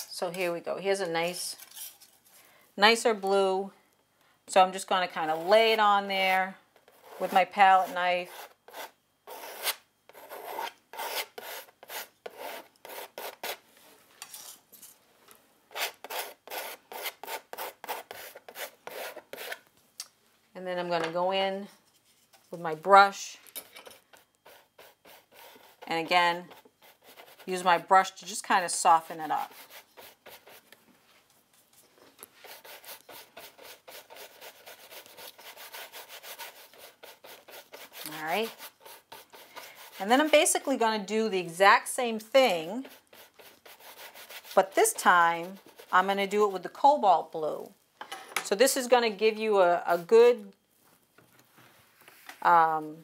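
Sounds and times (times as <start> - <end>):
palette knife scraping paint on canvas: 6.8 - 13.6, 15.7 - 19.6, 24.0 - 27.8, 29.2 - 30.7, 32.2 - 40.7, 42.6 - 46.1
paintbrush scrubbing on canvas: 32.3 - 40.6, 42.8 - 46.0.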